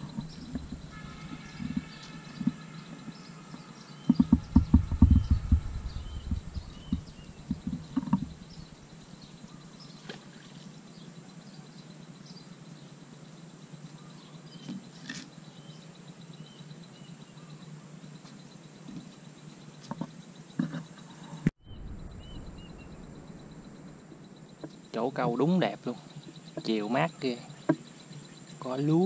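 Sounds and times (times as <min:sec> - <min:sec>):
low rumbling thumps: 0:00.0 - 0:02.6, 0:04.0 - 0:09.2, 0:21.6 - 0:24.7
small birds chirping: 0:00.0 - 0:29.0.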